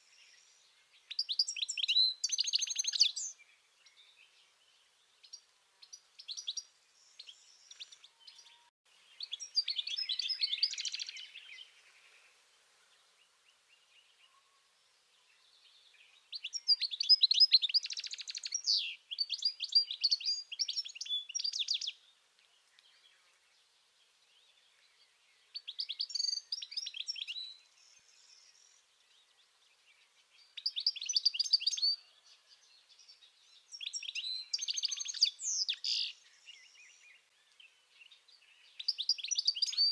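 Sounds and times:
goldfinch twittering song: 0.0s - 4.4s, 5.2s - 12.4s, 15.4s - 22.0s, 24.3s - 39.9s.

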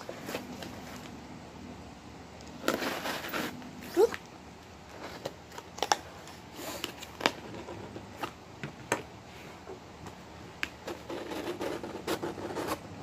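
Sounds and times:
cardboard rustling: 0.0s - 1.2s, 2.6s - 4.2s.

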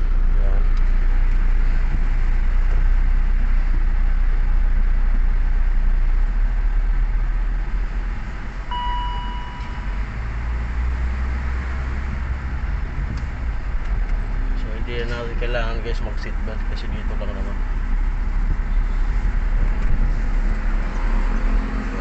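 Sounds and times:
engine and road rumble: 0.0s - 22.0s
electronic warning chime: 8.7s - 10.0s.

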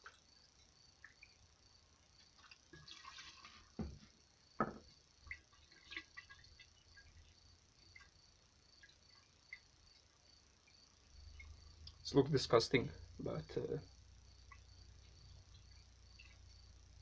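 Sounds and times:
liquid trickling into glass jar: 2.2s - 3.9s
liquid sloshing in jar: 2.2s - 4.1s, 5.2s - 8.2s
dull knocks: 4.6s - 4.9s.

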